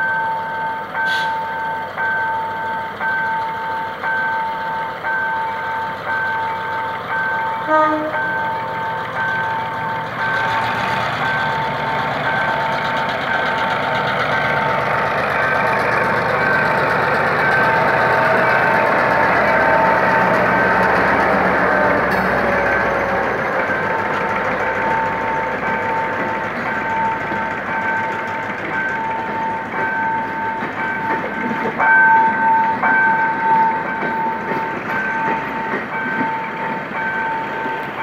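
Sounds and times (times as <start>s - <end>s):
diesel train passing: 0.0s - 38.0s
train horn toot: 7.6s - 8.4s.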